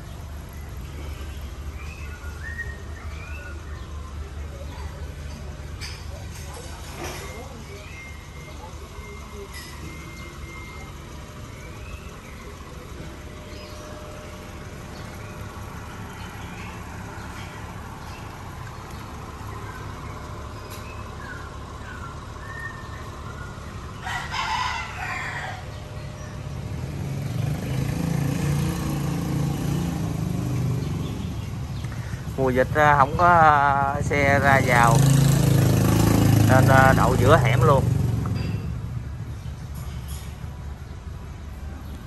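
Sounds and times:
car engine idling: 0.0 - 42.0
rooster crowing: 24.0 - 26.0.

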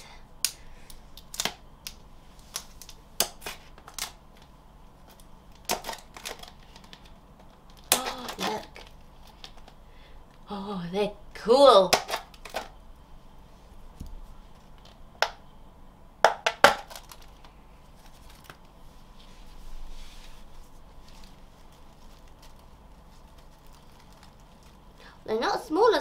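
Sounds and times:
plastic rustling: 2.3 - 9.8, 16.8 - 25.7.

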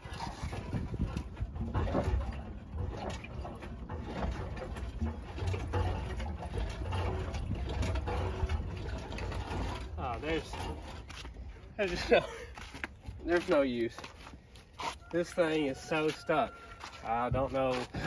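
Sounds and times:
engine being rocked rumbling: 0.0 - 14.4.

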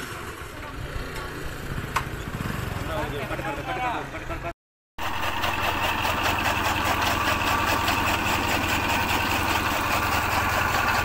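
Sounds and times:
engine humming: 5.0 - 11.0.

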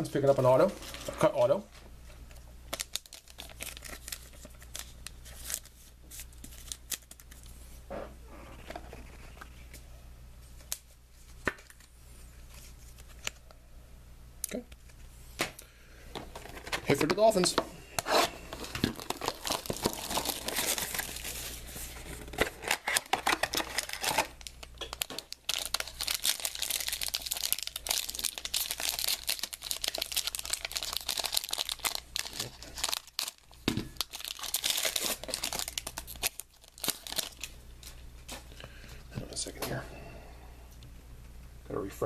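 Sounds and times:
foil pack crinkling: 2.7 - 7.5, 18.5 - 38.0
plastic wrapping tearing and crumpling: 2.7 - 7.5, 18.1 - 38.0.

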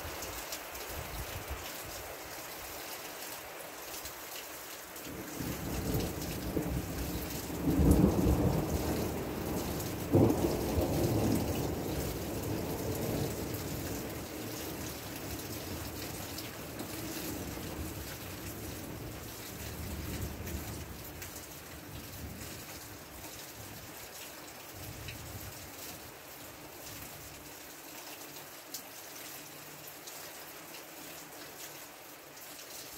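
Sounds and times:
steady rain: 0.0 - 32.9
thunder rumbling: 5.4 - 14.2.

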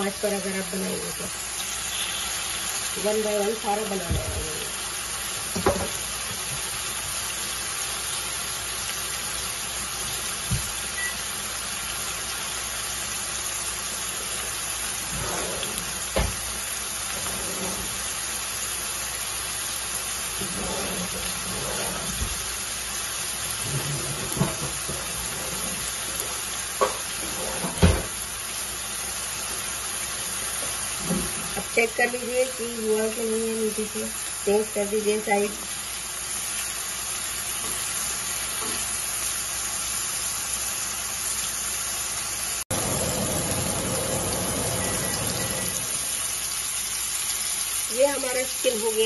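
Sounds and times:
chicken sizzling in hot oil: 0.0 - 49.0
knocks in skillet: 5.5 - 6.0.

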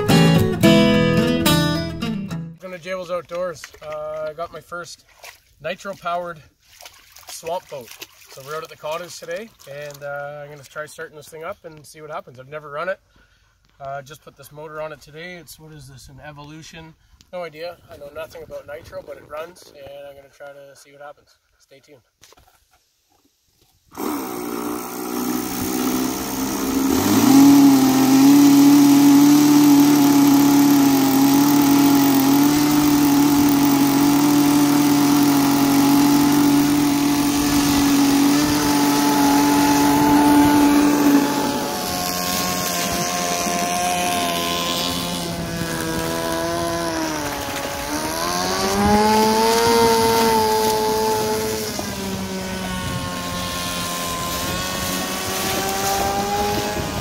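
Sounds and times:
model engine buzzing: 23.9 - 57.0.

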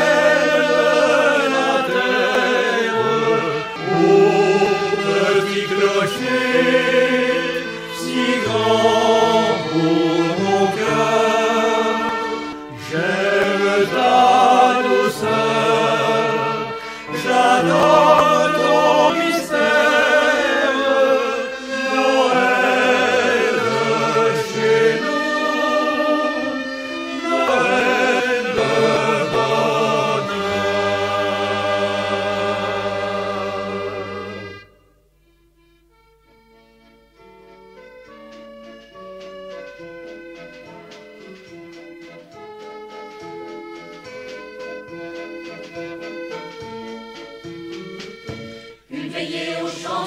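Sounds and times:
group singing: 0.0 - 34.7, 48.9 - 50.0.

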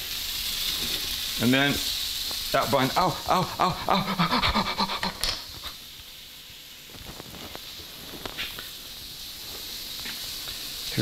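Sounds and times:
faint steady hiss: 0.0 - 11.0
man crying ow: 2.7 - 5.4.

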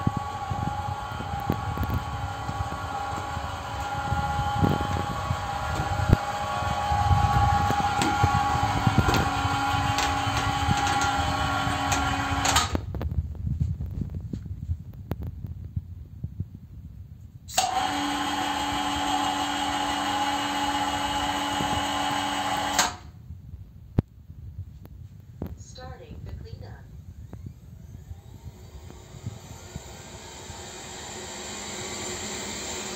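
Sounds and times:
electric motor whining: 0.0 - 12.8, 17.5 - 23.0, 27.0 - 32.9.

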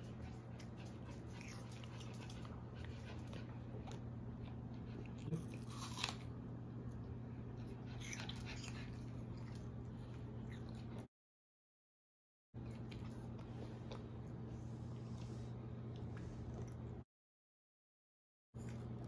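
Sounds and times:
steady low hum: 0.0 - 11.1, 12.6 - 17.0
child chewing apple: 0.1 - 6.4, 7.6 - 11.1.

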